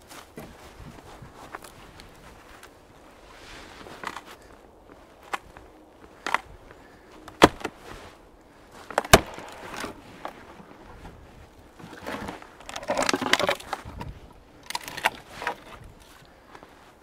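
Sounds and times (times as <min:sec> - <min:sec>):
footsteps crunching in snow: 0:00.0 - 0:17.0
dead wood cracking: 0:03.9 - 0:16.8.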